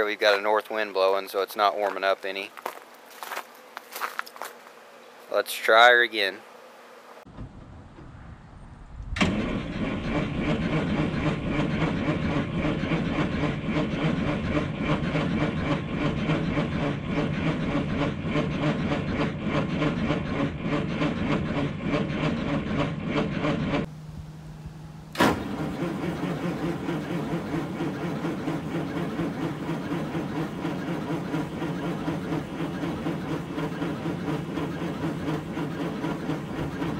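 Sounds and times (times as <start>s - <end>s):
diesel engine cranking: 9.1s - 36.9s.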